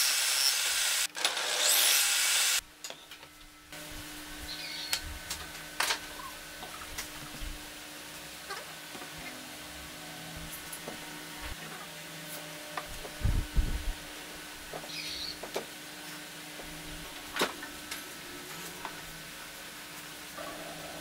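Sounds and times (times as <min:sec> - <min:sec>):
steady low hum: 0:12.2 - 0:19.3.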